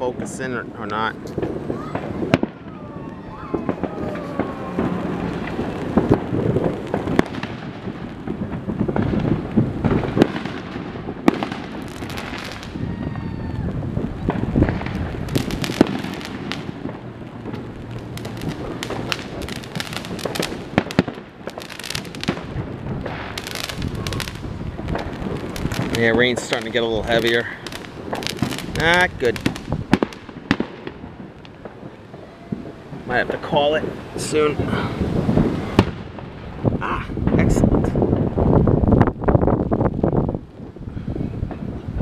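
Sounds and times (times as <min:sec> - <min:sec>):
fireworks whistling: 0:00.0 - 0:39.1
fireworks bangs and cracks: 0:00.0 - 0:42.0.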